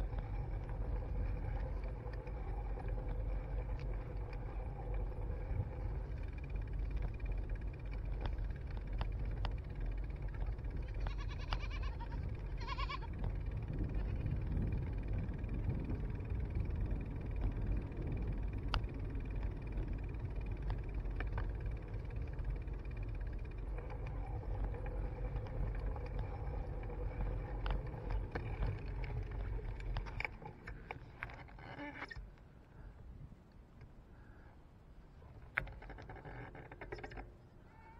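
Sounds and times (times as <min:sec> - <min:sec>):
wind and tyre rumble: 0:00.0 - 0:37.8
goat bleating: 0:10.8 - 0:13.1.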